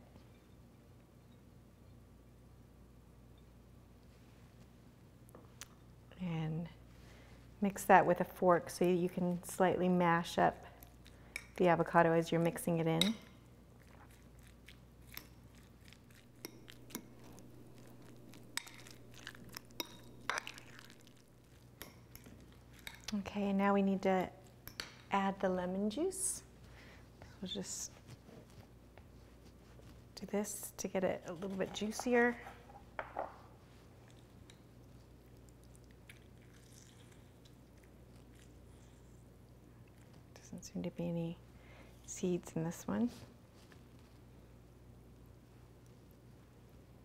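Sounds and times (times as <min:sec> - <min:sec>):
steady low hum: 0:08.8 - 0:42.2
fork mashing avocado: 0:13.8 - 0:23.1, 0:31.3 - 0:32.6
fork clinking against glass bowl: 0:16.4 - 0:21.0.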